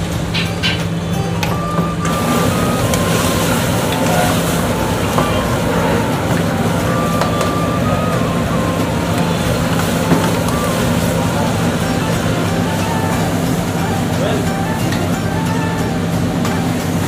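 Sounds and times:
gas burner hum: 0:00.0 - 0:17.0.

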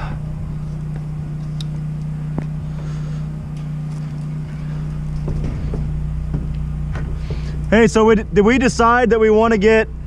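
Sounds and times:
engine running hum: 0:00.0 - 0:10.0.

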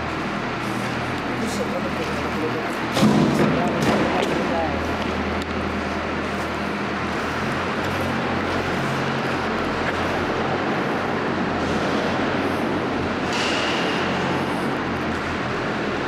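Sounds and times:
large engine running: 0:00.0 - 0:16.0.

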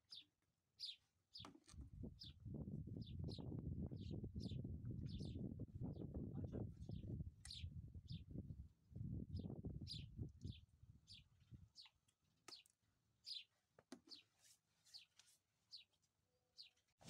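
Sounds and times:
small bird chirping: 0:00.0 - 0:06.1, 0:06.8 - 0:08.4, 0:09.3 - 0:14.3.

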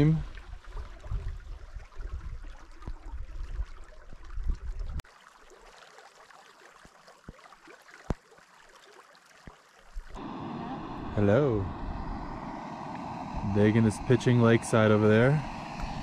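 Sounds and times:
stream water running: 0:00.0 - 0:16.0
low rumble: 0:10.2 - 0:16.0.

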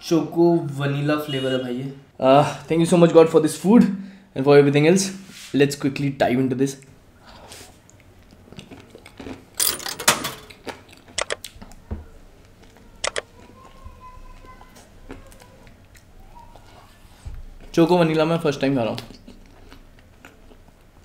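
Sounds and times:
chewing cake: 0:07.7 - 0:09.6, 0:10.5 - 0:17.8, 0:18.8 - 0:21.0.

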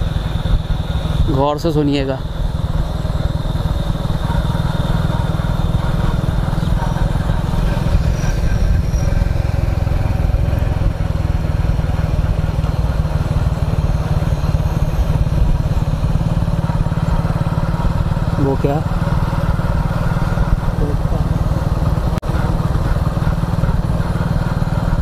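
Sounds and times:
motorcycle engine rumble: 0:00.0 - 0:25.0
wind and road noise: 0:00.0 - 0:25.0
crickets chirring: 0:00.1 - 0:20.0.

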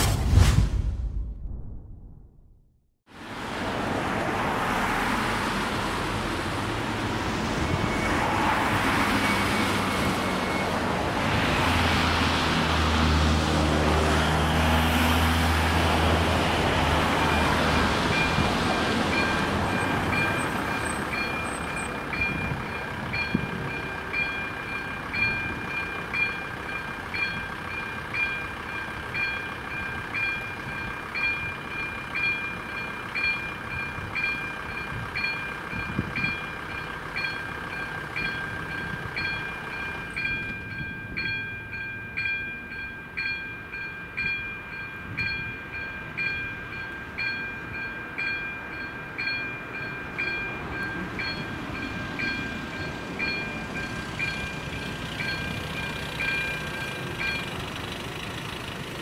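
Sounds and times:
road traffic passing: 0:03.1 - 0:59.0
level crossing warning bell: 0:16.6 - 0:59.0.

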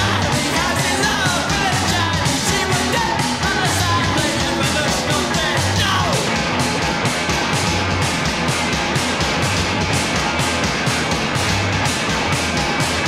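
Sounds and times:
punk rock song: 0:00.0 - 0:13.0.

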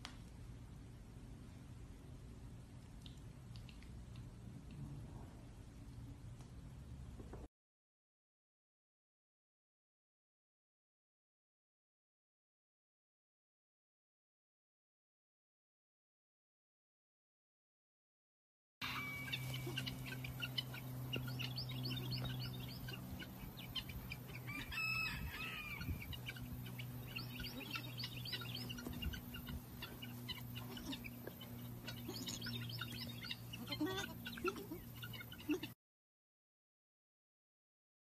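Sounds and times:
steady low hum: 0:00.0 - 0:07.5, 0:18.8 - 0:35.7
drawn-out bird call: 0:18.8 - 0:35.8
farmyard birds chirping and clucking: 0:18.8 - 0:35.8.

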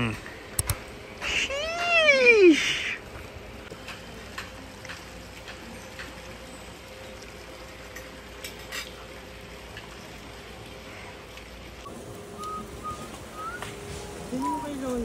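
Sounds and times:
faint hum: 0:10.8 - 0:15.0
background hiss: 0:11.8 - 0:15.0.

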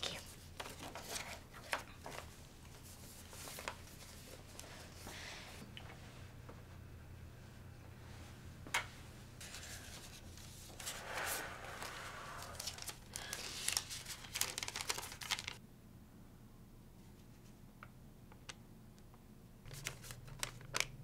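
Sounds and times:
paper tearing and crinkling: 0:10.8 - 0:15.6.

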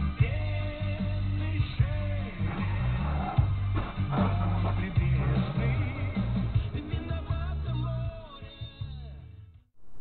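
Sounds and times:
background music with bass line: 0:00.0 - 0:09.6.

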